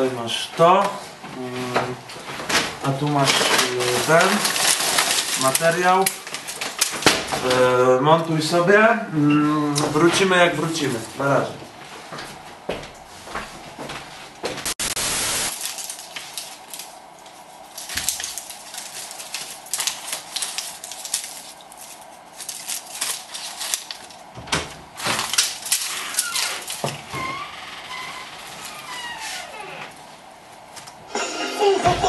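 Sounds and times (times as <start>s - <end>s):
film strip crackling and rustling: 0.0s - 8.9s, 13.3s - 31.1s
burst of hiss: 14.8s - 15.6s.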